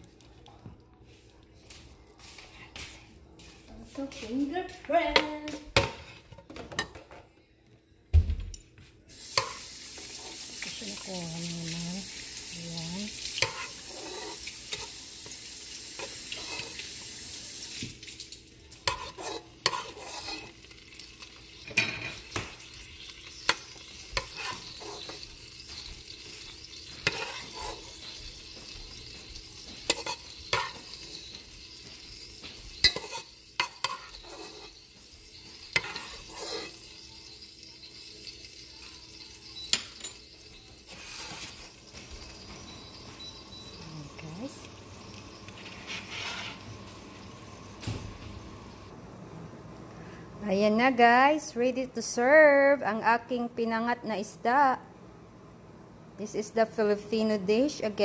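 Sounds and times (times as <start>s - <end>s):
metal spoon scraping a pot: 13.3s - 15.2s, 15.9s - 17.0s, 18.7s - 44.3s, 45.0s - 46.8s.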